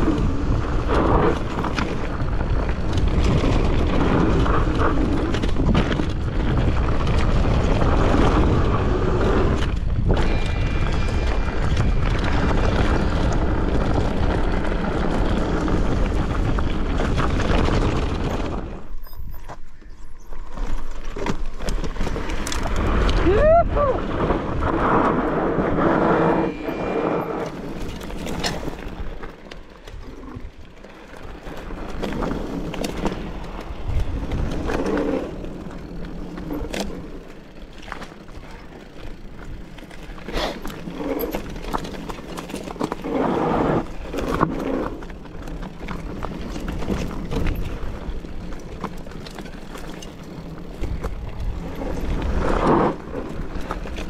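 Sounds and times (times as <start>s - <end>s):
wind rushing on microphone: 0.0s - 19.5s, 22.0s - 29.2s
wheels knocking on stones: 0.0s - 23.2s, 24.1s - 54.0s
bike rattling: 0.0s - 54.0s.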